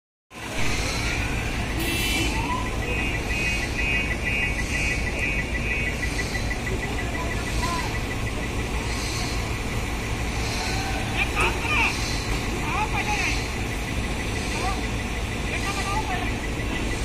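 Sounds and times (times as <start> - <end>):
heavy diesel engine running: 0.3 - 17.0
high-pitched warning beeper: 1.7 - 17.0.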